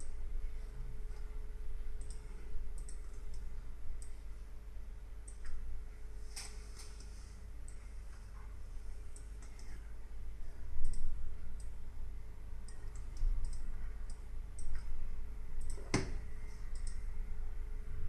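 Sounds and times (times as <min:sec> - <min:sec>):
steady low hum: 0:00.0 - 0:18.0
computer mouse clicks: 0:02.0 - 0:04.2, 0:05.2 - 0:05.6, 0:06.4 - 0:07.8, 0:09.1 - 0:09.8, 0:10.8 - 0:11.7, 0:12.6 - 0:15.0, 0:15.6 - 0:17.1.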